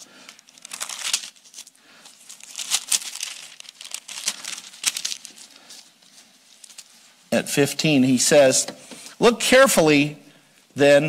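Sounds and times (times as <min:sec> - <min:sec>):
pages rustling: 0:00.0 - 0:07.1.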